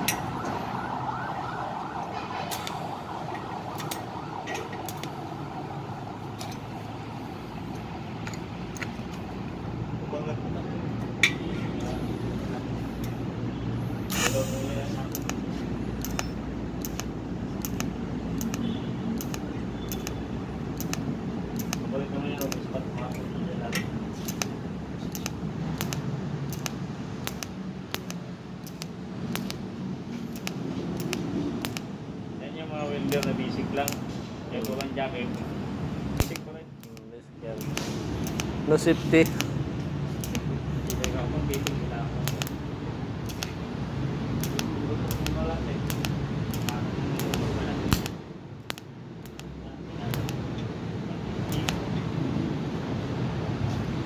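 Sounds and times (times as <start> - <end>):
arc welding crackling hiss: 14.1 - 15.2
welding arc hissing: 14.1 - 15.4, 30.3 - 31.9, 37.6 - 43.7, 44.3 - 49.5
sharp ticks: 15.1 - 15.4, 16.0 - 20.2, 20.8 - 22.6, 25.1 - 29.6, 30.3 - 31.9, 33.1 - 34.0, 36.2 - 38.6, 39.2 - 39.6, 40.2 - 42.6, 43.2 - 43.6, 44.4 - 49.5, 51.5 - 51.8.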